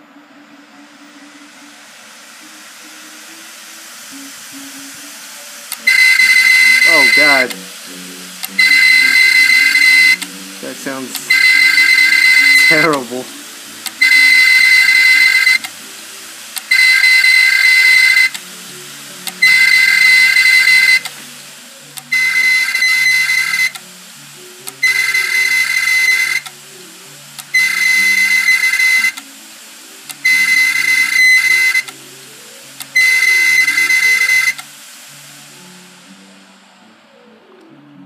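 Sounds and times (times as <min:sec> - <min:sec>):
hard drive high-pitched squeal: 0:05.7 - 0:07.6, 0:08.4 - 0:13.2, 0:13.9 - 0:15.7, 0:16.6 - 0:18.4, 0:19.3 - 0:21.1, 0:22.0 - 0:23.8, 0:24.7 - 0:26.5, 0:27.4 - 0:29.2, 0:30.1 - 0:31.9, 0:32.8 - 0:34.6.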